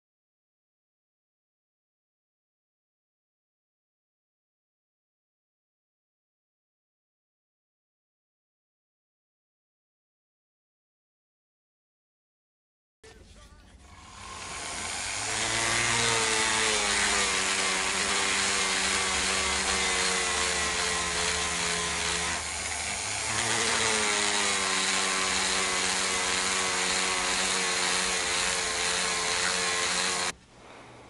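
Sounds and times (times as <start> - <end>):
rotary tool motor whine: 14.0 - 30.3.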